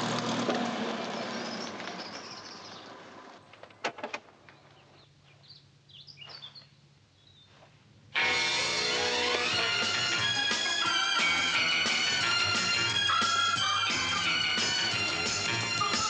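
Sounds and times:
truck engine running: 0:00.0 - 0:03.4, 0:08.3 - 0:16.0.

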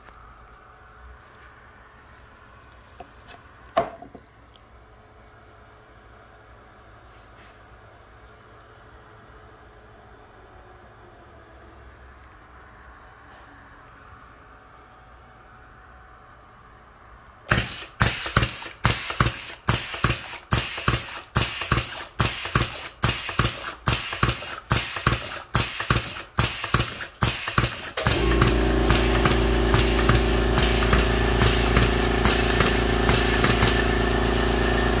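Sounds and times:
pump clacking with air rush: 0:17.5 - 0:35.0
loud steady hum: 0:27.9 - 0:35.0.

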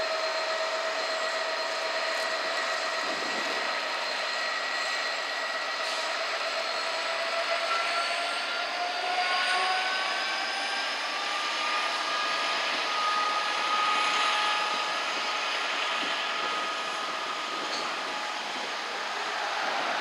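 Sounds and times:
diesel locomotive engine whine: 0:00.0 - 0:20.0.

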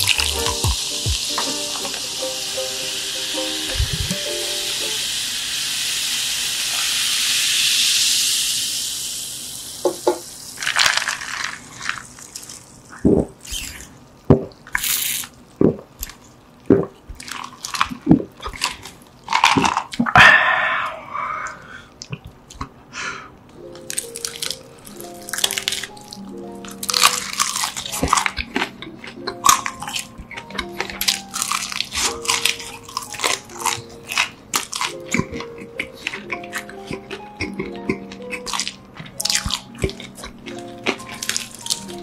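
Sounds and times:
soda fizzing: 0:00.0 - 0:13.8, 0:14.6 - 0:15.3.

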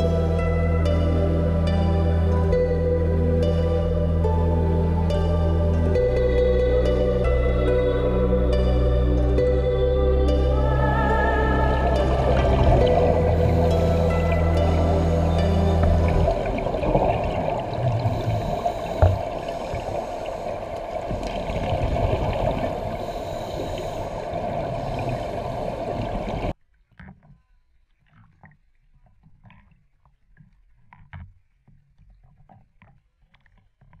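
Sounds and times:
faint water sounds: 0:00.0 - 0:27.2
underwater rush of water: 0:10.3 - 0:26.5
diver exhaust bubbles: 0:10.6 - 0:26.5.

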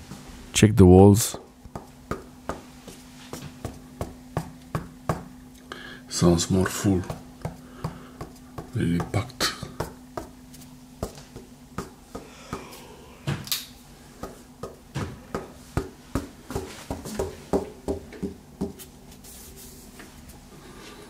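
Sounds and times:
knuckles knocking on a wall: 0:01.7 - 0:05.3, 0:07.0 - 0:10.4, 0:14.2 - 0:18.8.

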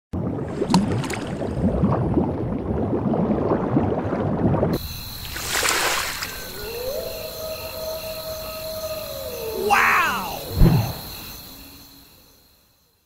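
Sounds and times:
underwater bubbling and gurgling: 0:00.2 - 0:04.8
brief whoosh: 0:10.3 - 0:11.1.

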